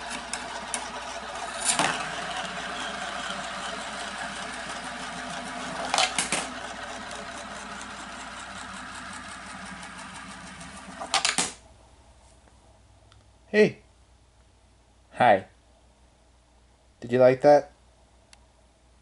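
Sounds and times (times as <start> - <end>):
coins rolling whirring rattle: 0.0 - 11.6.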